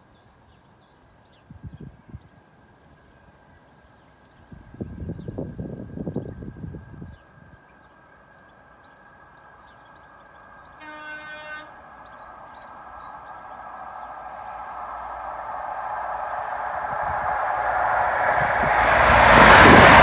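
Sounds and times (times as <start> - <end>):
train running noise: 4.4 - 20.0
train horn blast: 10.8 - 11.9.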